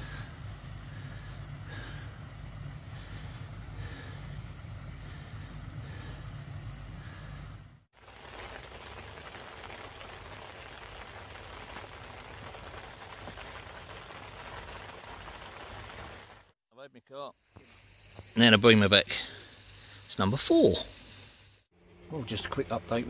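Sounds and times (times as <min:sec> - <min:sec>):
rain falling on water: 0:08.0 - 0:16.6.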